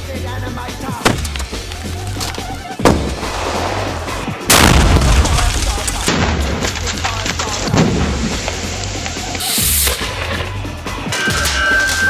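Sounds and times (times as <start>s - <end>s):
electronic music with bass beat: 0.0s - 3.2s, 8.2s - 11.6s
explosion blasts: 2.8s - 6.9s, 7.6s - 8.6s.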